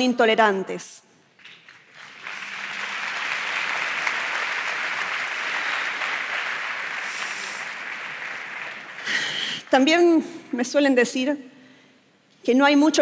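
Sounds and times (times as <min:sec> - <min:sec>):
large audience applauding: 0:01.4 - 0:09.7.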